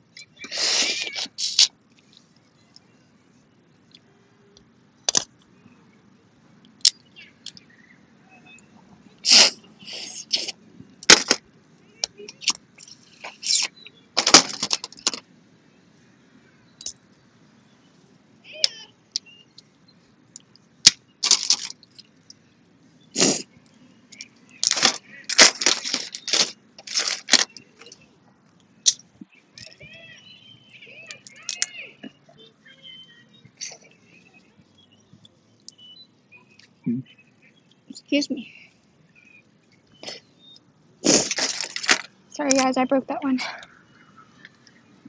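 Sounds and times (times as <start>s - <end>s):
shells cracking and snapping: 5.1s - 5.5s, 20.4s - 22.4s, 24.1s - 27.6s.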